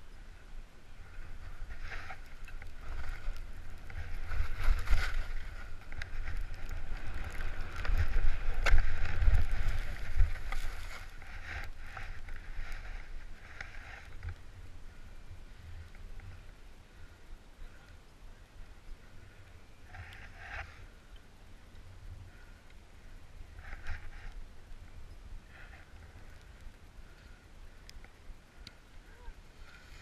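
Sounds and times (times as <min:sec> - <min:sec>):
wind rumbling on microphone: 0:00.0 - 0:30.0
skis scraping over snow: 0:01.0 - 0:14.4.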